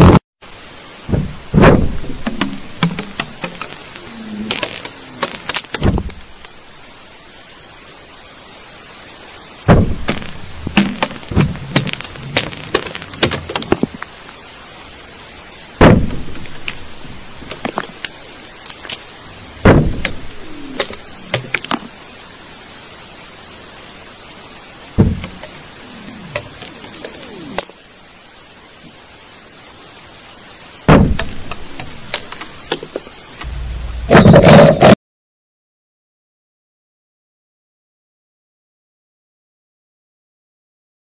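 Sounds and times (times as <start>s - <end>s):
steady hiss: 0.4s - 34.9s
heavy dull thuds: 1.0s - 3.6s, 9.7s - 12.5s, 19.6s - 20.3s, 25.0s - 25.4s, 33.4s - 34.7s.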